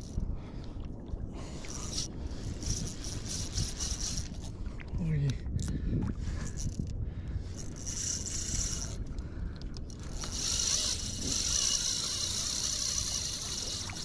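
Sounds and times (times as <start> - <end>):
fishing reel whirring: 1.4 - 4.5, 6.5 - 14.0.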